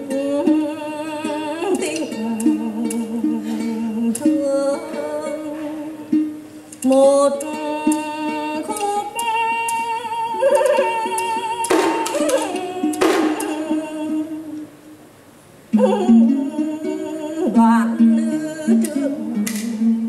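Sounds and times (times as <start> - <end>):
plucked lute sliding notes: 0.0 - 14.8, 15.7 - 20.0.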